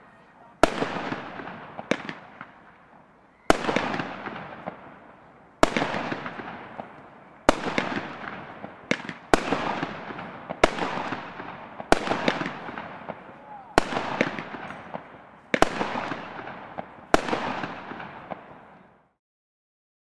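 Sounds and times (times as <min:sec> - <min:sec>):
small firework pops: 0:00.6 - 0:19.0
firework battery bangs: 0:03.5 - 0:18.7.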